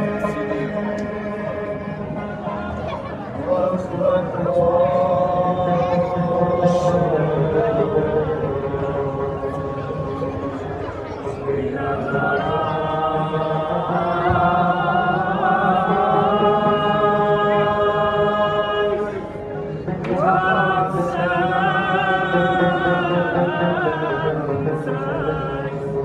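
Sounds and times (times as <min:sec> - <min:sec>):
men singing slow chant: 0:03.5 - 0:10.5, 0:11.5 - 0:19.3, 0:20.1 - 0:26.0.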